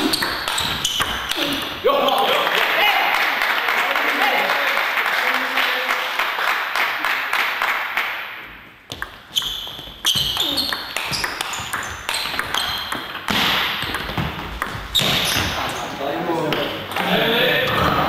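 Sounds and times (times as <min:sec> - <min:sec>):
table tennis ball hits: 0:00.0 - 0:01.8, 0:08.9 - 0:15.5
crowd noise in hall: 0:00.0 - 0:11.5, 0:12.1 - 0:18.0.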